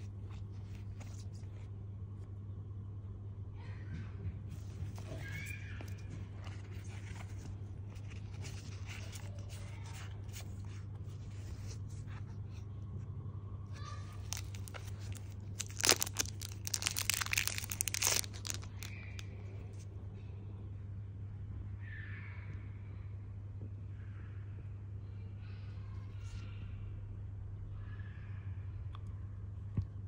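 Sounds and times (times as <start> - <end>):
steady low hum: 0.0 - 30.0
packaging rustling and crinkling: 14.1 - 19.8.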